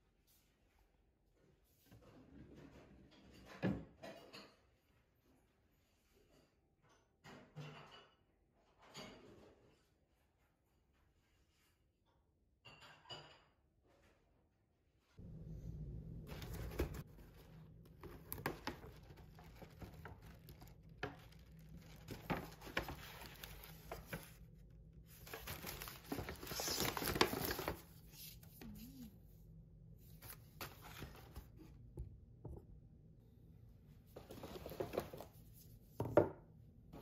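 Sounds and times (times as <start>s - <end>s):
paper bag rustling and crinkling: 16.3s - 29.1s.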